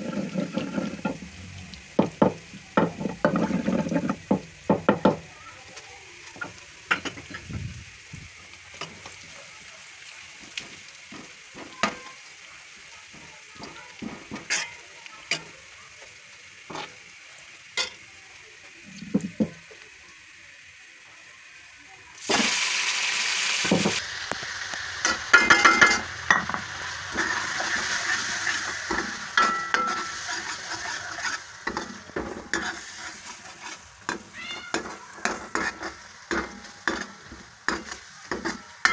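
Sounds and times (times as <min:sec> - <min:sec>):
ladle scraping against pan: 0:00.0 - 0:01.3, 0:03.0 - 0:04.2, 0:25.0 - 0:38.9
food sizzling in oil: 0:00.0 - 0:38.9.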